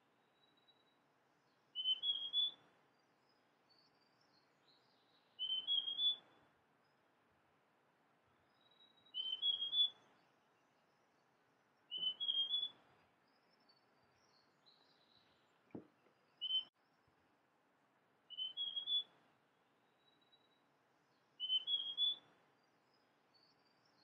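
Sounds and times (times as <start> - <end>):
bird singing whistled notes: 0.2 - 6.4, 8.4 - 11.2, 11.8 - 17.0, 18.3 - 19.2, 19.9 - 24.0.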